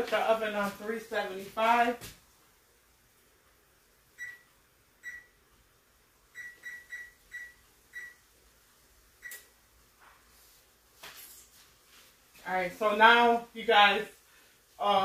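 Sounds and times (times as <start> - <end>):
oven control panel beeps: 4.2 - 5.4, 6.4 - 8.2, 9.2 - 9.5.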